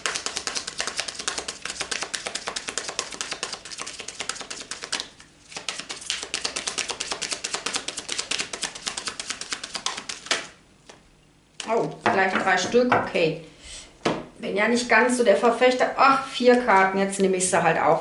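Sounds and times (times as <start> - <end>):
cards being shuffled: 0.0 - 11.0.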